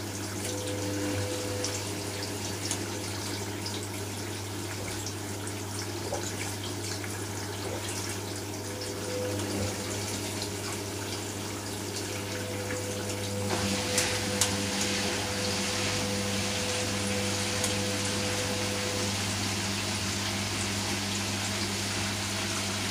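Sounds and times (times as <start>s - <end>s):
washing machine hum: 0.0s - 22.9s
curtains tumbling through water: 13.1s - 21.1s.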